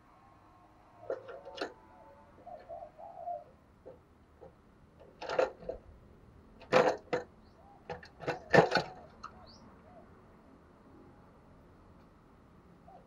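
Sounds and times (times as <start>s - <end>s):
bird rattling cage: 3.9s - 5.8s, 6.6s - 7.3s, 7.9s - 9.3s.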